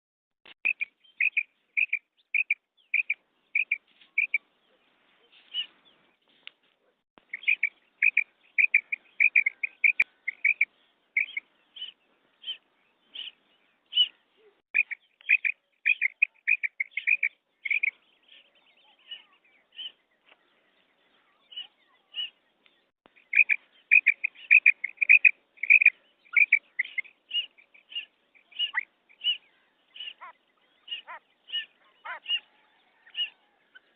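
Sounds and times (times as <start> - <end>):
quail calling: 7.3 - 12.6, 23.2 - 33.9.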